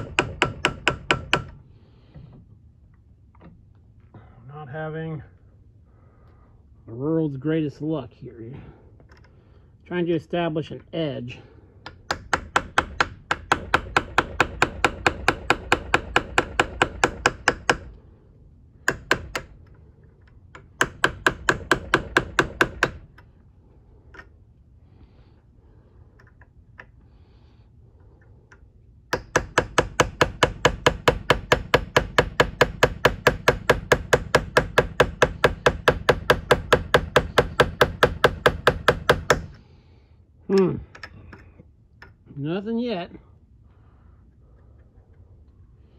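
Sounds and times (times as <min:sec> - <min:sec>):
hammer tapping steel punch: 0:00.0 - 0:01.6, 0:11.8 - 0:17.9, 0:18.8 - 0:19.8, 0:20.5 - 0:23.3, 0:28.5 - 0:39.6.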